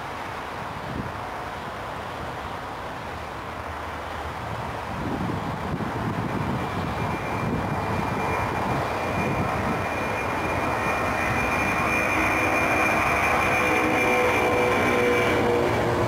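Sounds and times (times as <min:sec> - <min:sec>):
jet engines whining: 0:05.2 - 0:16.0.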